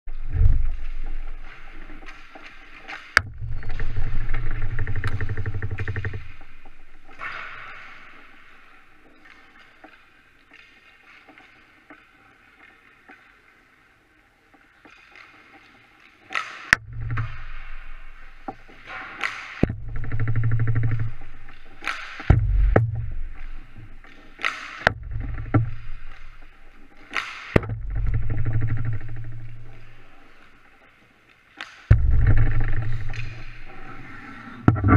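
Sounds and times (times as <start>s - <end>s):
hockey stick hitting puck: 18.9s - 19.6s, 24.3s - 26.4s, 27.0s - 28.0s.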